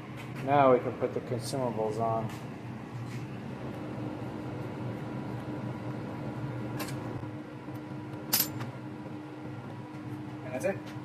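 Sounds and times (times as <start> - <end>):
steady low hum: 0.0 - 11.0
small metallic clinks: 8.3 - 8.6.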